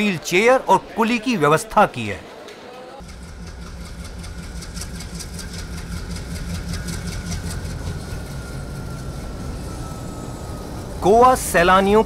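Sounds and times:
diesel locomotive engine drone: 3.0s - 12.0s
faint thin whine: 7.5s - 11.9s.

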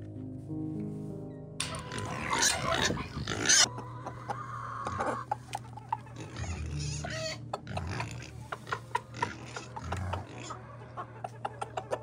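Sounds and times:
chickens clucking: 1.6s - 12.0s.

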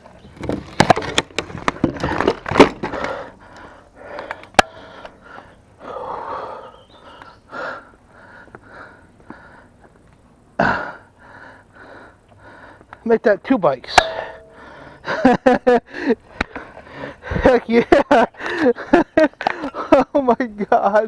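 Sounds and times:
bicycle clattering on wooden planks: 0.1s - 4.9s
heavy panting breaths: 2.9s - 10.0s, 10.6s - 13.1s, 14.4s - 15.1s, 15.9s - 17.5s.

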